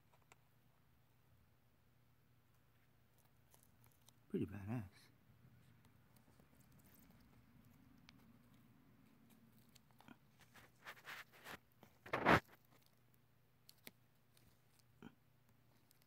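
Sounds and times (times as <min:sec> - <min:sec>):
rustling and scraping in substrate: 0:09.2 - 0:12.9.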